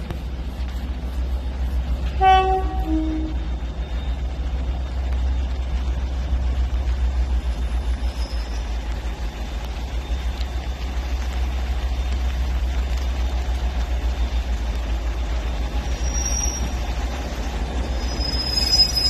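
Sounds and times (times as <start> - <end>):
low train rumble: 0.0 - 19.0
two-tone train horn: 2.1 - 3.5.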